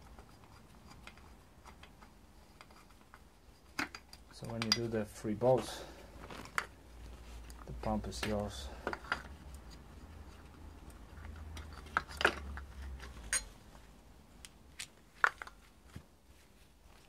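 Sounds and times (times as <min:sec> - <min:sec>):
spanner clinking on metal: 0:13.2 - 0:13.6.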